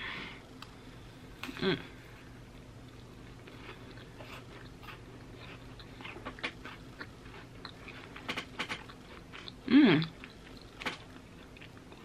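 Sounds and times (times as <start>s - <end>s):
person humming mm: 1.4s - 2.0s, 9.6s - 10.2s
quiet chewing: 2.5s - 12.0s.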